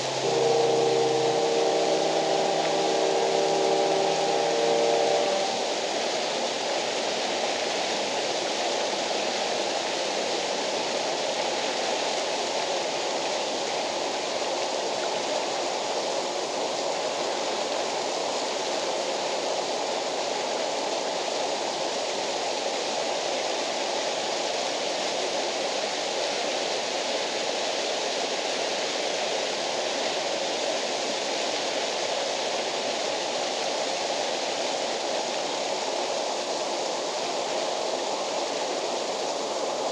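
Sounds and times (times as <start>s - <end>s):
waterfall rushing: 0.0s - 20.0s, 21.0s - 39.9s.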